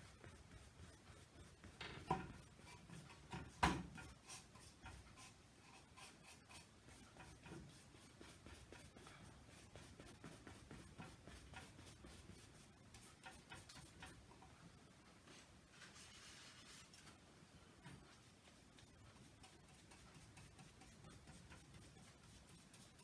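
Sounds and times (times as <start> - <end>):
brush knocking against canvas: 0.0 - 5.1
paintbrush scratching on canvas: 0.0 - 14.3, 18.0 - 23.0.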